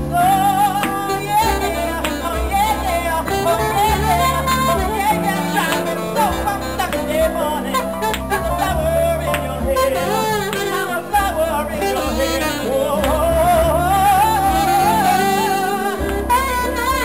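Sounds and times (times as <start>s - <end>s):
man singing: 0.0s - 17.0s
piano: 0.0s - 17.0s
saxophone: 0.0s - 17.0s.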